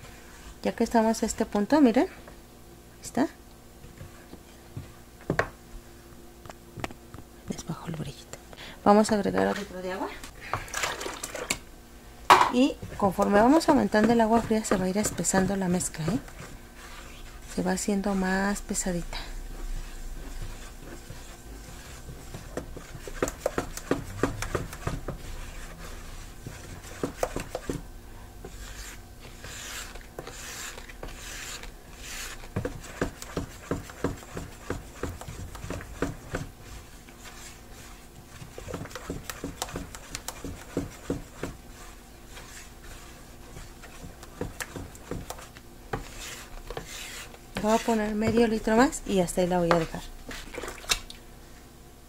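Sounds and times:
spatula scraping plastic basin: 0:12.6 - 0:27.8, 0:28.4 - 0:51.0.

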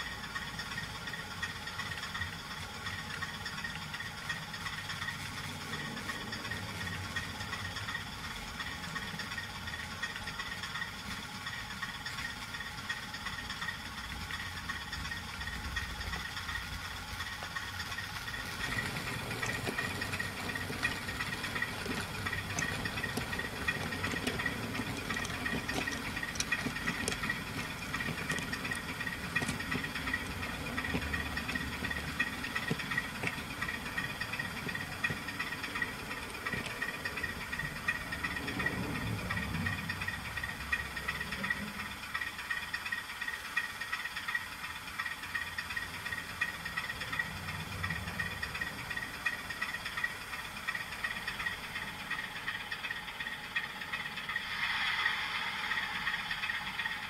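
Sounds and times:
model train whir and rattle: 0:00.0 - 0:57.0.

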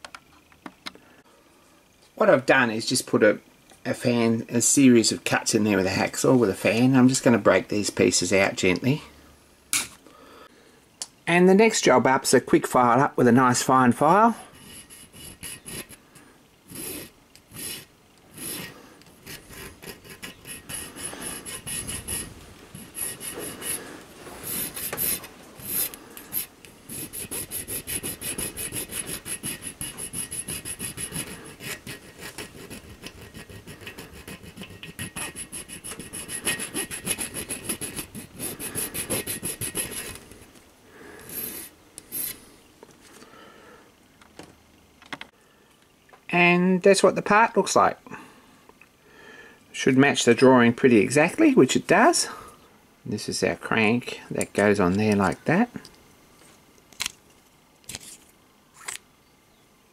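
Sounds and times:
needle file rasping on brass: 0:14.4 - 0:16.0, 0:16.7 - 0:40.2, 0:41.2 - 0:42.4.

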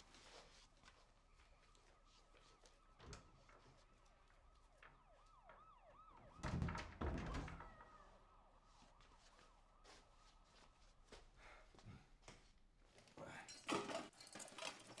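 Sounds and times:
faint yelping siren: 0:01.0 - 0:11.1.

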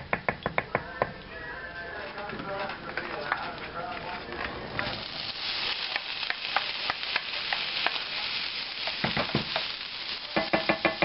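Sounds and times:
meat sizzling in a skillet: 0:04.7 - 0:11.0.

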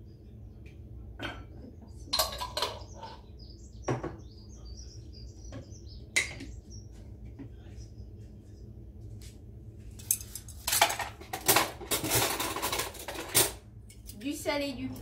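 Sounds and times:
small birds chirping: 0:00.0 - 0:08.8.

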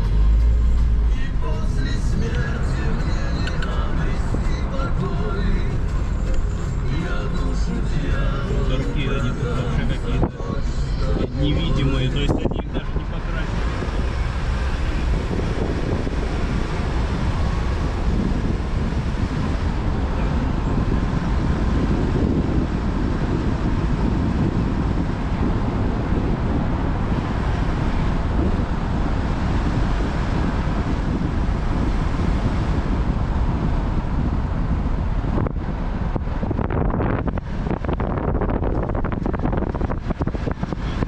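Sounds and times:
car engine and road noise: 0:00.0 - 0:41.0
wind buffeting: 0:01.9 - 0:41.0.

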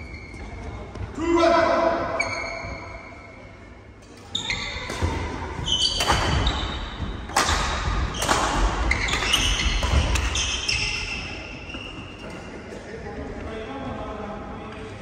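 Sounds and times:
rackets striking shuttlecock: 0:04.8 - 0:10.6.

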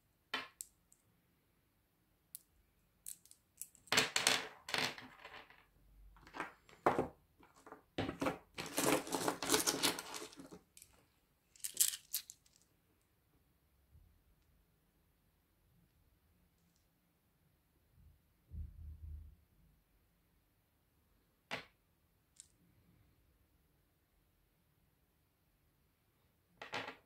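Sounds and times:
stones clicking on hard tabletop: 0:03.1 - 0:11.0, 0:26.6 - 0:27.0
pebbles clattering together: 0:07.4 - 0:11.0, 0:11.6 - 0:12.6.

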